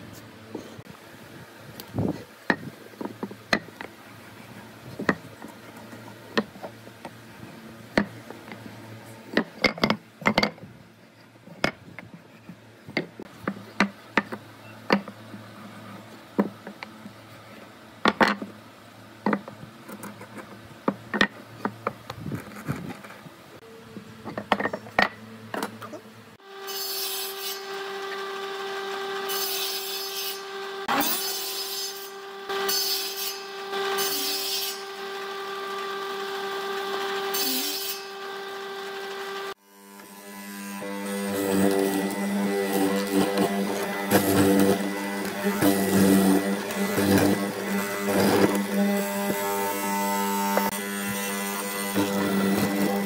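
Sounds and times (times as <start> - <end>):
wood scraping and rubbing: 2.0 - 9.6, 19.3 - 23.3, 41.4 - 53.0
table saw running: 26.4 - 53.0.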